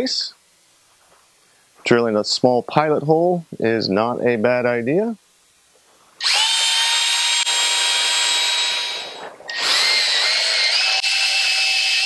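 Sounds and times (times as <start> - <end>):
cordless drill whirring: 6.2 - 12.0.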